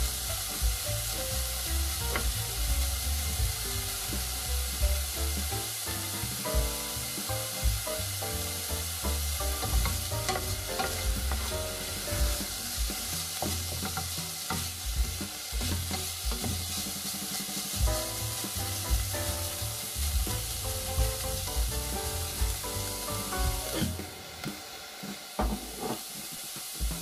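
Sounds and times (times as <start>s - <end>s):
vegetables sizzling in a pan: 0.0s - 27.0s
spatula scraping a pan: 9.5s - 17.8s, 23.7s - 24.0s
spatula knocking against pan: 9.6s - 11.5s, 12.2s - 16.9s.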